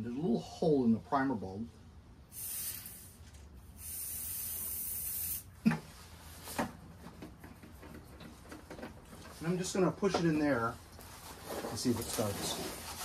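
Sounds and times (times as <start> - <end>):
aerosol can spraying: 2.3 - 3.2, 3.8 - 5.5.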